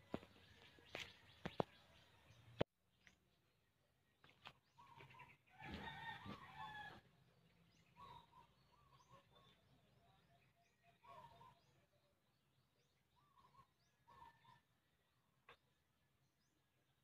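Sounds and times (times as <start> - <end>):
rooster crowing: 5.5 - 7.1.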